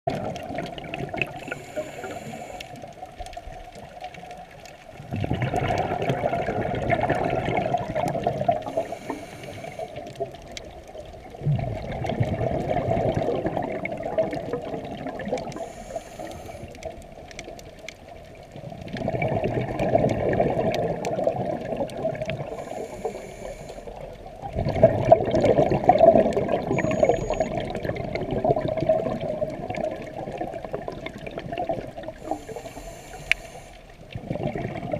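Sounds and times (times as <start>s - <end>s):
exhaled bubbles underwater: 0.1s - 34.9s
regulator hissing inhale: 1.4s - 2.9s, 8.6s - 10.1s, 15.5s - 16.8s, 22.4s - 24.1s, 32.2s - 34.0s.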